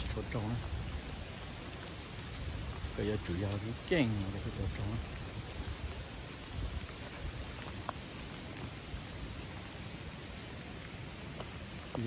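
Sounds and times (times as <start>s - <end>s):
outdoor hiss: 0.0s - 12.0s
footsteps on forest floor: 6.8s - 9.8s.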